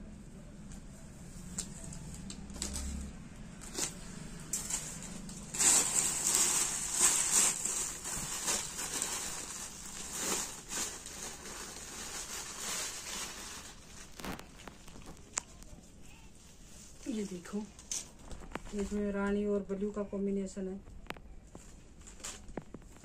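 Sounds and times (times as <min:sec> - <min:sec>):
plastic packaging crinkling: 0:01.5 - 0:15.9, 0:17.0 - 0:19.4, 0:20.9 - 0:23.0
cloth rustling: 0:03.6 - 0:15.8.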